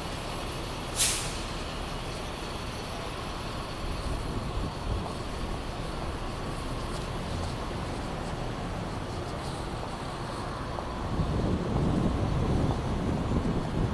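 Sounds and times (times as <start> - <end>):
passing vehicles rumble: 0.0 - 13.9
wind buffeting microphone: 10.5 - 13.9.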